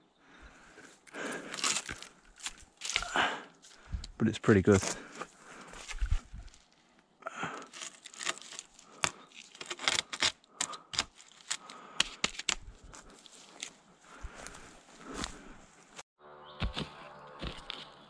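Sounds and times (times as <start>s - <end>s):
dry twigs crackling and snapping: 1.0s - 4.1s, 5.2s - 16.0s.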